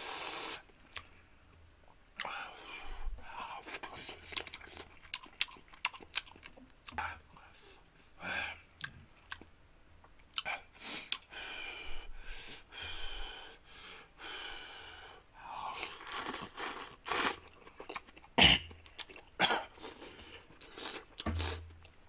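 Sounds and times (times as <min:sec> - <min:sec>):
chewing: 0:03.6 - 0:08.0, 0:08.8 - 0:09.5, 0:15.8 - 0:22.0.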